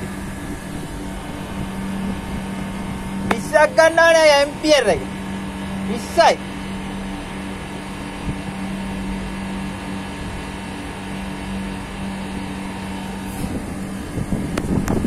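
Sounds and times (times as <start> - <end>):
wind on microphone: 0.0 - 3.4, 13.0 - 15.0
machine humming: 0.0 - 15.0.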